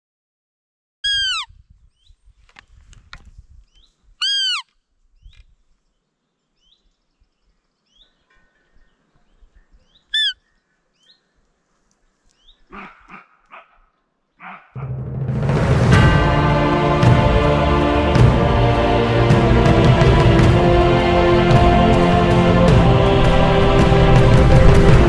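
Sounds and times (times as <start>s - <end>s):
high-pitched squeaking calls: 1.0s - 1.6s, 4.2s - 4.8s, 9.9s - 11.2s
small birds chirping: 1.0s - 2.8s, 3.6s - 14.8s.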